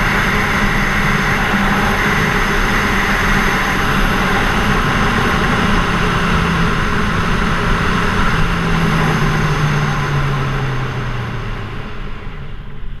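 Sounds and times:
motorcycle engine running: 0.0 - 13.0
wind rushing over microphone: 0.0 - 13.0.

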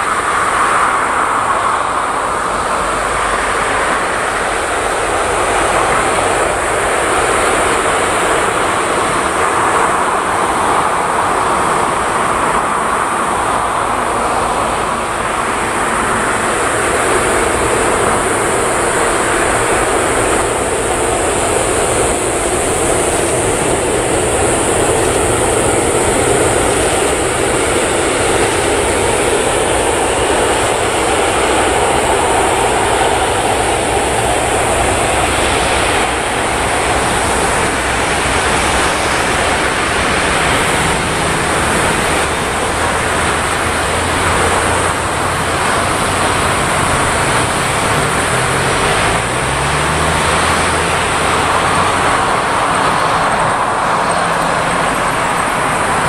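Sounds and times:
jet engines running: 0.0 - 56.0.

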